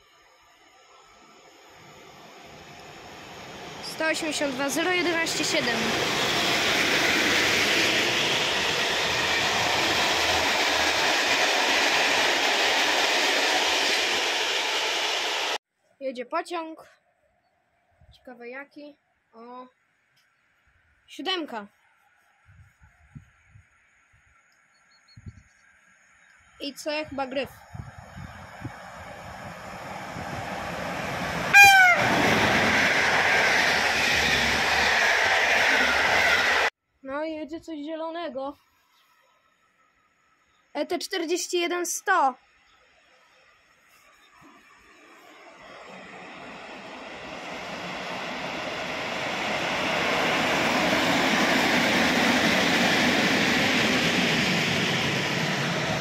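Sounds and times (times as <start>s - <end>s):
train wheels running on rails: 1.6s - 15.6s, 26.7s - 36.7s, 44.4s - 56.0s
passenger coaches rushing and rumbling: 3.6s - 15.4s
locomotive horn blast: 31.5s - 32.3s.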